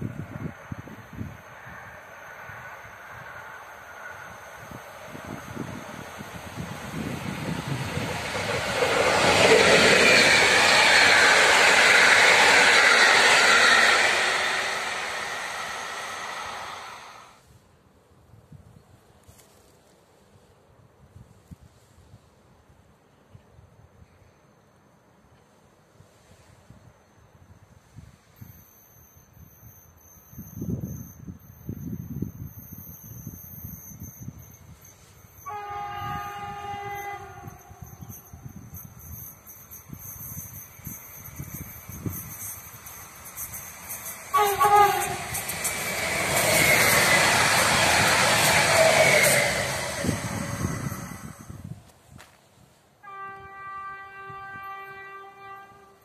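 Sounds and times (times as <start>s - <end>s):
train rushing past on rails: 0.0s - 17.6s, 25.9s - 56.0s
train horn blast: 35.4s - 38.0s, 44.3s - 45.4s, 53.0s - 56.0s.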